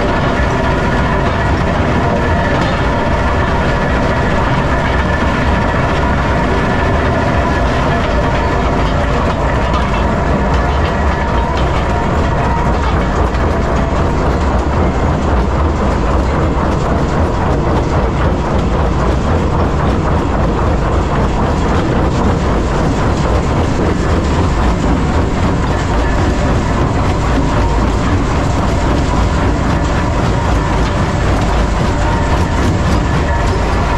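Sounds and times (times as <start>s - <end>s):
rock crusher rumbling: 0.0s - 33.9s.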